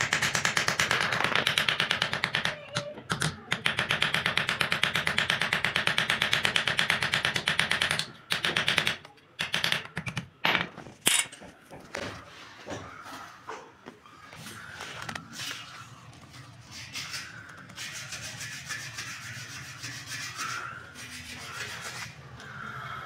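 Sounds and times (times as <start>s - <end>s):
small hammer tapping rapidly: 0.0s - 10.3s.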